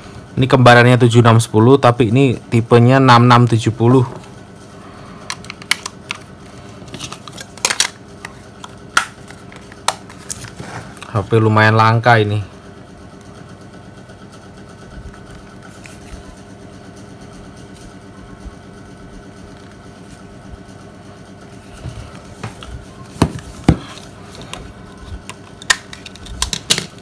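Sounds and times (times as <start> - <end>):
phone knocking on table: 23.2 - 23.9.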